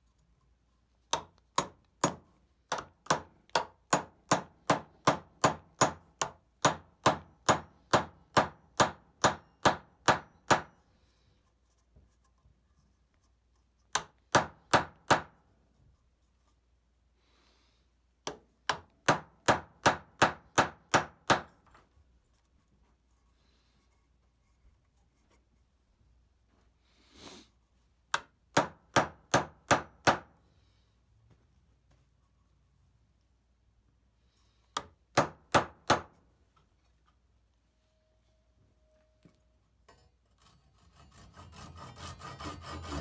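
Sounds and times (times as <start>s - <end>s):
hammer tapping wooden wedge: 1.1s - 10.8s, 13.9s - 15.4s, 18.2s - 21.8s, 28.1s - 30.3s, 34.7s - 36.2s.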